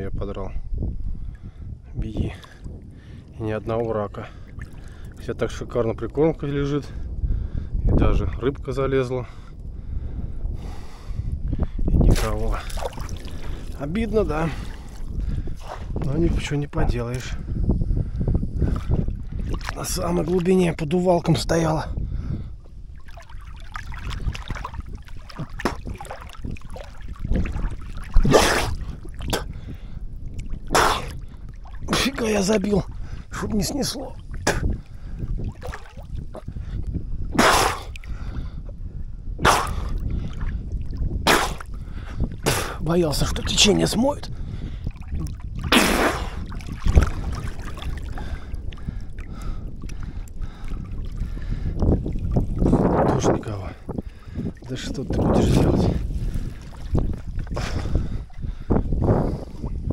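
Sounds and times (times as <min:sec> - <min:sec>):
wind rumbling on microphone: 0:00.0 - 0:59.9
water splashing: 0:03.7 - 0:05.3, 0:12.0 - 0:16.5, 0:18.6 - 0:20.9, 0:22.9 - 0:36.5, 0:39.5 - 0:44.2, 0:44.8 - 0:58.6.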